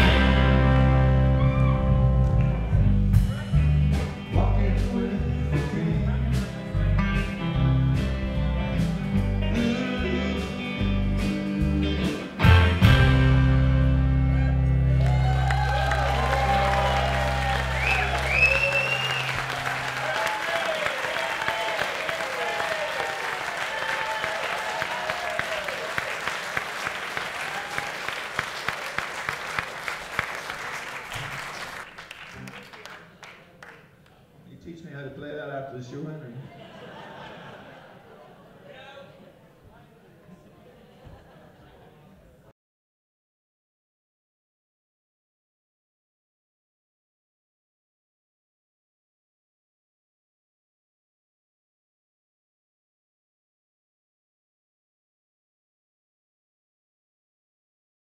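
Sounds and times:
electric guitars: 0:00.0 - 0:20.4
drums: 0:00.0 - 0:20.5
bass guitar: 0:00.0 - 0:20.6
cheering voices: 0:01.1 - 0:02.4, 0:14.2 - 0:33.0
audience applauding: 0:14.9 - 0:34.2.

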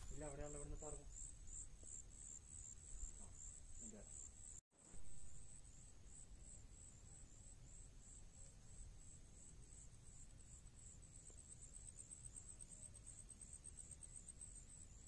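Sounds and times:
high-pitched insect chirping: 0:00.0 - 0:04.6, 0:05.3 - 0:15.0.

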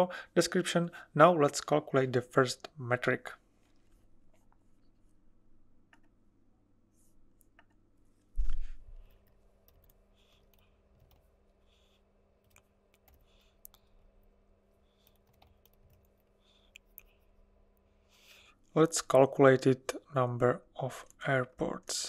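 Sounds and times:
keyboard typing: 0:09.0 - 0:17.3.

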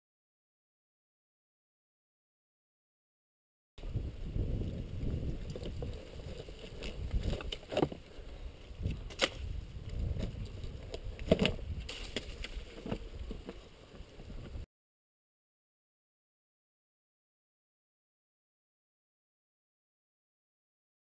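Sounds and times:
bike knocking against rocks: 0:04.5 - 0:14.6.

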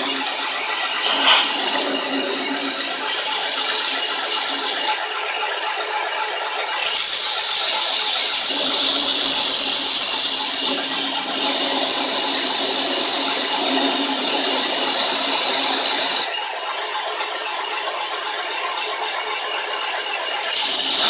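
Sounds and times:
compressed air nozzle hissing: 0:00.0 - 0:05.0, 0:06.8 - 0:16.3
boring bar cutting metal: 0:00.0 - 0:05.4, 0:06.7 - 0:16.3, 0:20.4 - 0:21.0
steady machine hum: 0:00.0 - 0:06.2, 0:06.8 - 0:16.2.

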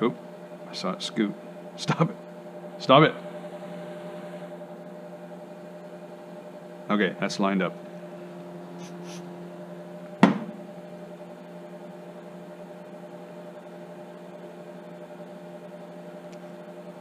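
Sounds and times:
space heater electric hum: 0:00.0 - 0:17.0
aerosol can knocking on workbench: 0:10.2 - 0:10.6.

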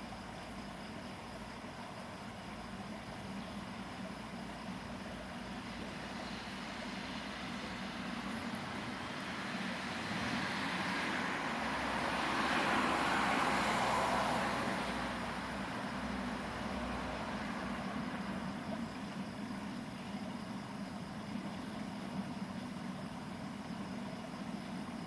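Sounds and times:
road traffic rush: 0:02.8 - 0:25.0
vehicle passing: 0:06.2 - 0:18.2.

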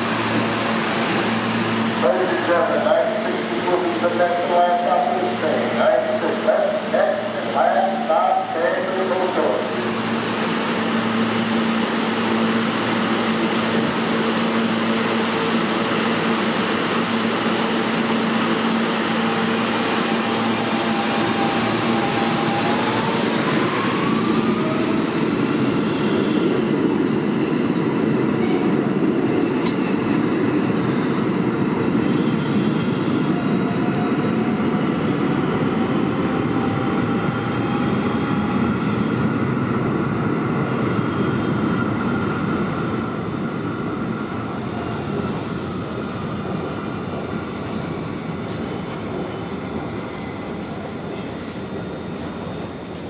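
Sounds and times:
subway train electrical hum: 0:00.0 - 0:53.0
train motor whine: 0:18.1 - 0:24.8.

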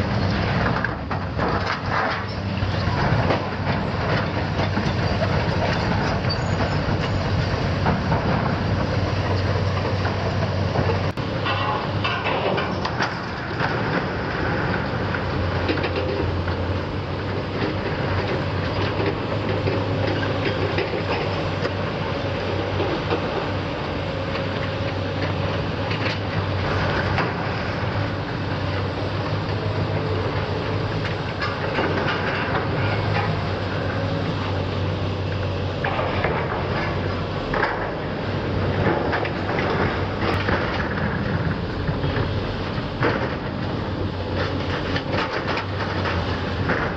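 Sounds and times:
diesel engine running under load: 0:00.0 - 0:46.9
metal clanking and scraping: 0:09.3 - 0:14.1, 0:31.0 - 0:33.9.

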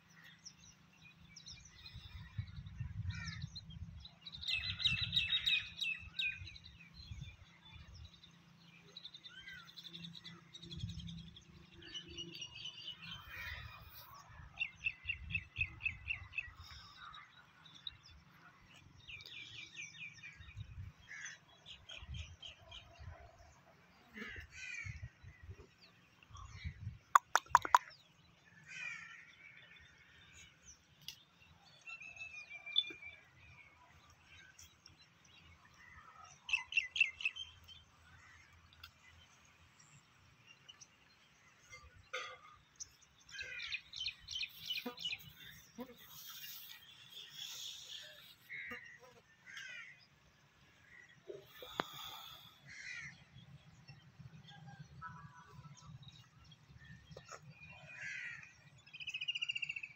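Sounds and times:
birds calling and chirping: 0:00.0 - 0:59.9
sharp clicks: 0:27.2 - 0:27.9.

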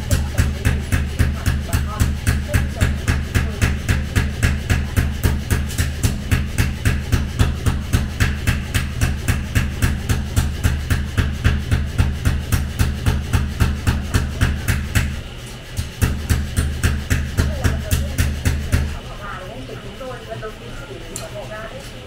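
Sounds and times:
pulsing bass line: 0:00.0 - 0:15.2.

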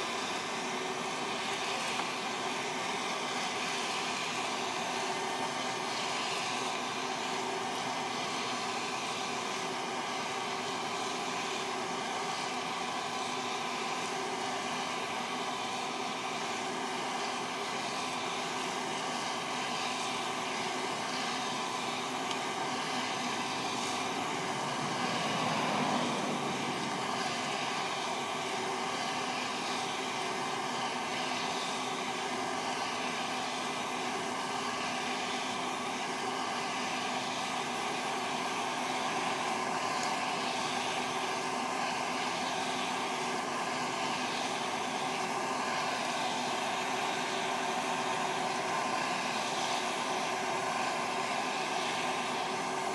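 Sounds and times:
hot-air popper fan whoosh: 0:00.0 - 0:52.9.

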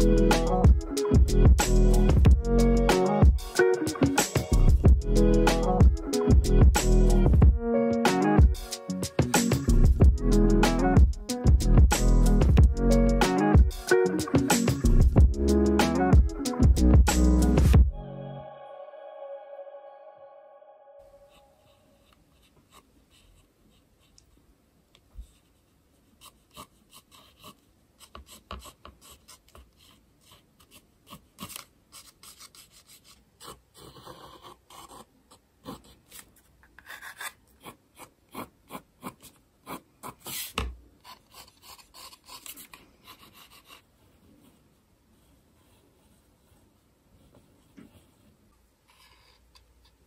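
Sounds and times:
pencil sketching on paper: 0:21.2 - 0:24.2, 0:25.2 - 0:50.0.

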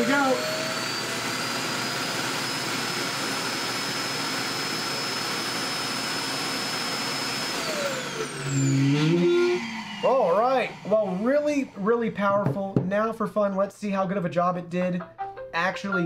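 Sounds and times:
suction motor rushing and whining: 0:00.0 - 0:12.4.

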